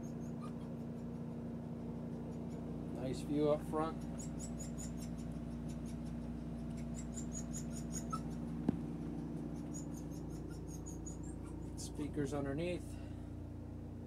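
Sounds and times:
low machine hum: 0:00.0 - 0:14.0
rapid high-pitched chirps: 0:03.9 - 0:08.6, 0:09.2 - 0:11.7.

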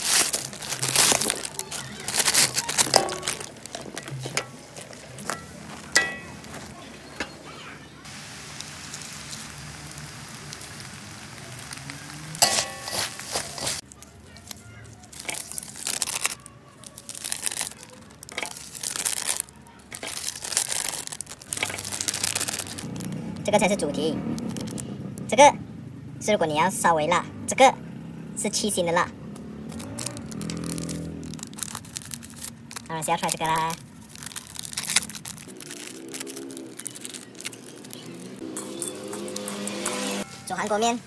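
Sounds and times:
plastic packet crinkling: 0:00.0 - 0:06.8, 0:11.4 - 0:23.4, 0:24.2 - 0:25.2, 0:29.7 - 0:39.7
dry noodles crunching: 0:00.0 - 0:07.3, 0:11.4 - 0:25.2, 0:29.6 - 0:40.2.

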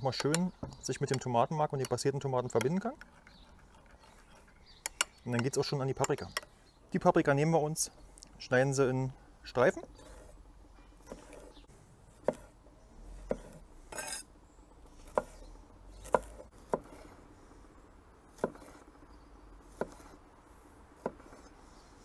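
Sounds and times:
knife slicing pepper: 0:11.0 - 0:11.5, 0:12.2 - 0:12.6, 0:13.2 - 0:14.3, 0:14.9 - 0:17.2, 0:18.3 - 0:18.9, 0:19.6 - 0:20.2, 0:21.0 - 0:21.6.

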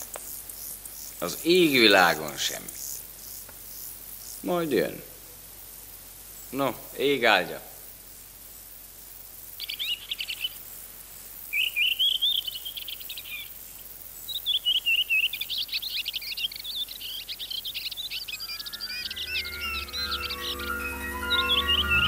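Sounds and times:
songbirds singing: 0:09.5 - 0:10.7, 0:11.4 - 0:22.0
faint music: 0:18.3 - 0:22.0.

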